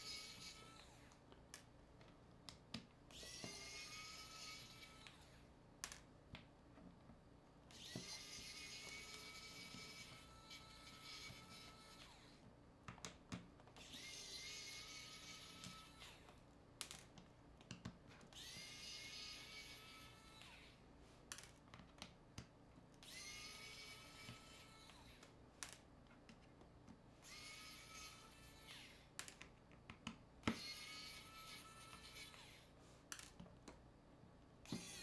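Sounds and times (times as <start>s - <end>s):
electric screwdriver whirring: 3.1s - 5.3s, 7.7s - 12.3s, 13.8s - 16.3s, 18.3s - 20.7s, 23.0s - 25.2s, 27.2s - 29.0s, 30.5s - 32.6s, 34.7s - 35.0s.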